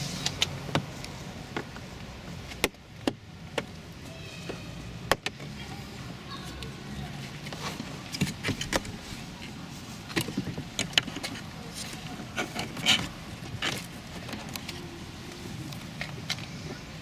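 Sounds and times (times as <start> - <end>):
plastic scraping and rattling: 7.2 - 15.0.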